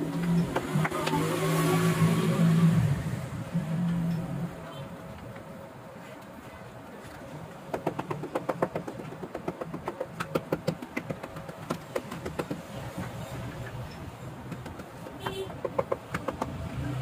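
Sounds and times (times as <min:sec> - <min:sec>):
hammer tapping on leather: 0:07.7 - 0:12.7.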